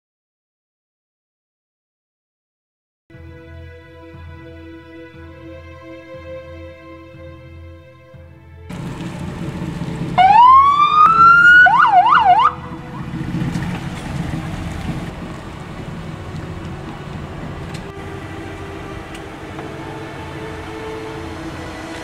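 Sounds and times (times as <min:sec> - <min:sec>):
steady low rumble: 0:08.5 - 0:22.0
electronic police siren: 0:10.2 - 0:13.1.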